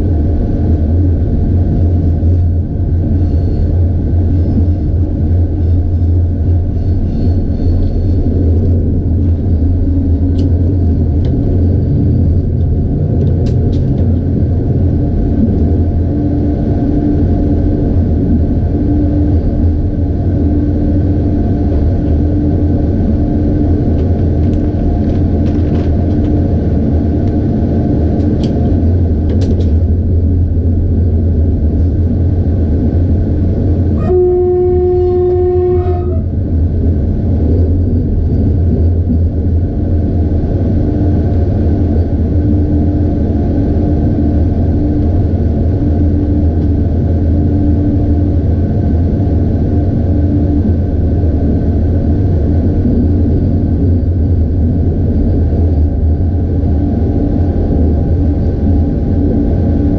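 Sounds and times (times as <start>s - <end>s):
train rumbling on track: 0.0s - 59.9s
locomotive horn blast: 33.9s - 36.4s.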